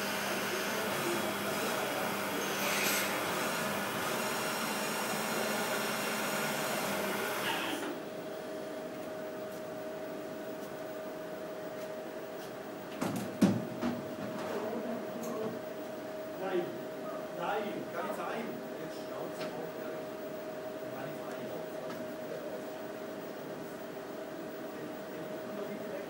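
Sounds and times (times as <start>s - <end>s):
milling spindle whine and hiss: 0.0s - 8.1s
machine hum: 0.0s - 26.0s.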